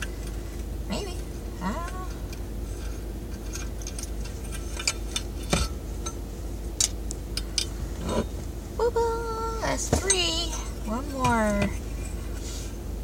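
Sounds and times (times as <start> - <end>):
car engine running hum: 0.0 - 13.0
small metal parts clicking: 1.8 - 6.2.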